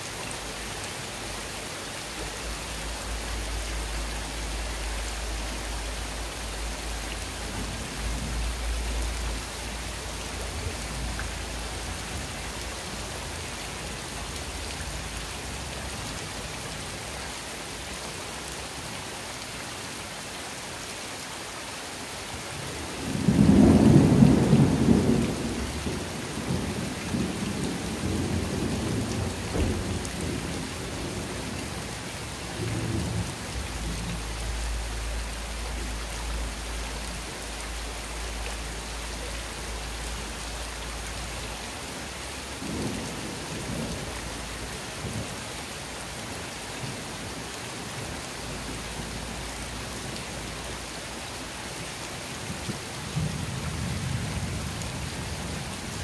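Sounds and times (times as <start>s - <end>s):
rain falling steadily: 0.0s - 56.0s
rumble of thunder: 23.0s - 31.8s.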